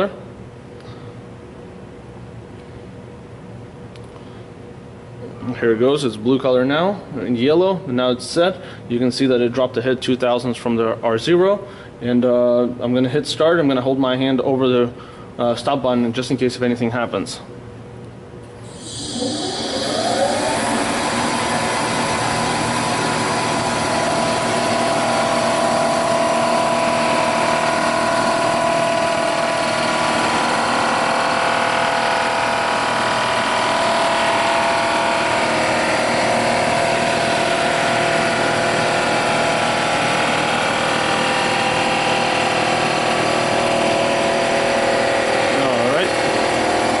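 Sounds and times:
surfacing machine whine: 18.6s - 47.0s.

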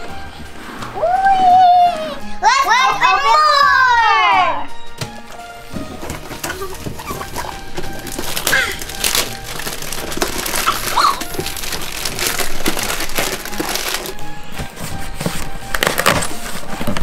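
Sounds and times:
background music: 0.0s - 17.0s
wrapping paper ripping: 6.0s - 14.2s.

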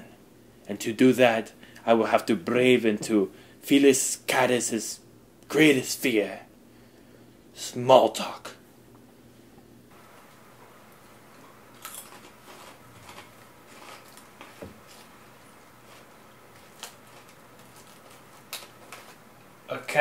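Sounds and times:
snacks crunching: 11.3s - 19.3s
foil bag crinkling: 11.8s - 19.3s.

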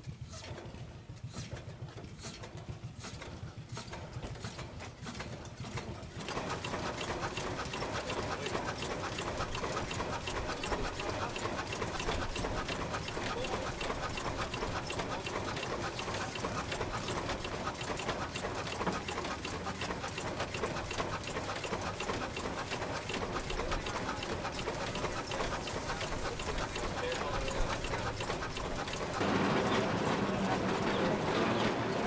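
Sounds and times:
stationary engine running: 0.5s - 32.0s
valve gear clicking: 9.4s - 29.2s.

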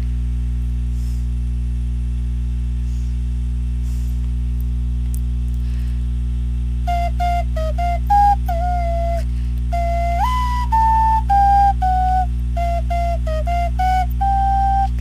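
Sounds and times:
low electrical mains hum: 0.0s - 15.0s
ocarina notes: 6.8s - 15.0s.

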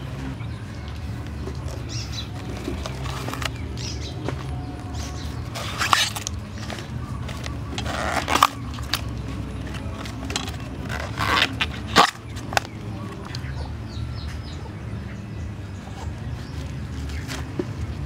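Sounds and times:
bracts snapping and tearing: 1.6s - 13.5s.

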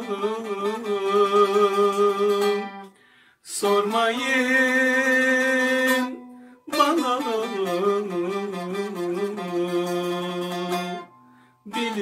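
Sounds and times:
plucked strings: 0.0s - 3.0s, 3.6s - 12.0s
man singing long held note: 3.5s - 10.8s, 11.7s - 12.0s.

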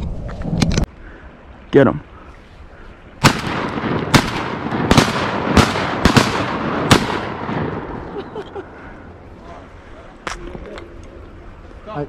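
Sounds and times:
shotgun shots: 3.2s - 8.0s.

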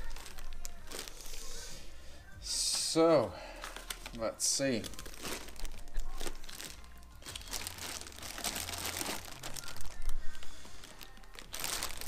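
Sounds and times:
plastic bag crinkling: 0.0s - 1.5s, 3.6s - 12.0s.

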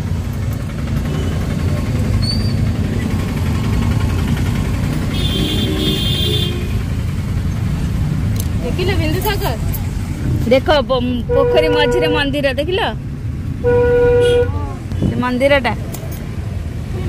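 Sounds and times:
car engine and tyres rumbling: 0.0s - 17.0s
vehicle horn beeps: 1.0s - 1.6s, 5.1s - 6.8s, 11.3s - 12.3s, 13.6s - 15.2s.

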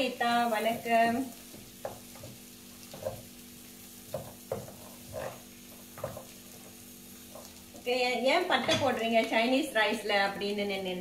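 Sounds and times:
spices frying in oil: 0.0s - 11.0s
spatula scraping metal pan: 4.5s - 6.2s.

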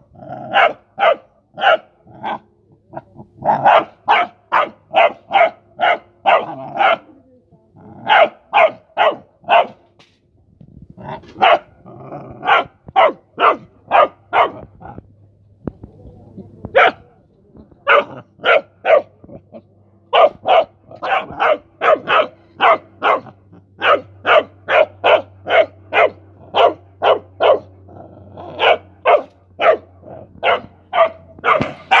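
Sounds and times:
puppy barking: 0.5s - 2.4s, 3.4s - 7.1s, 8.0s - 9.8s, 11.3s - 11.7s, 12.4s - 14.7s, 16.7s - 17.0s, 17.8s - 19.2s, 20.1s - 27.7s, 28.6s - 32.0s.

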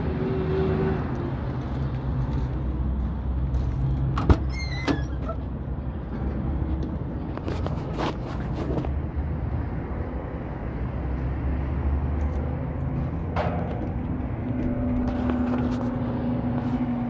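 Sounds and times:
cab door squeaking open: 4.2s - 5.5s.

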